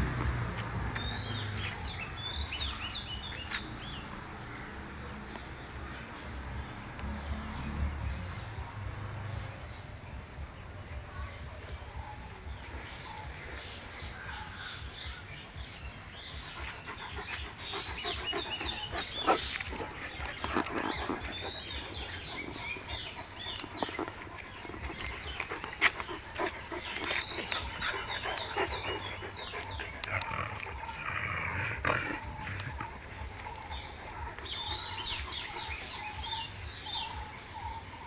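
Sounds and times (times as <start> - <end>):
dogs yelping and whining: 16.3 - 36.6.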